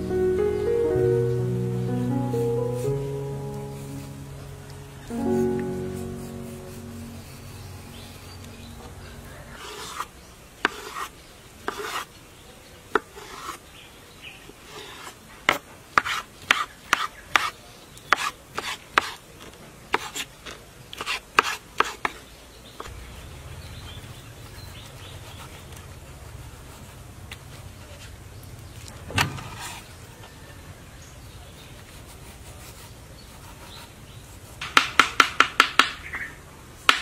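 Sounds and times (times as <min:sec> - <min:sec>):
low steady hum: 0:00.0 - 0:10.6.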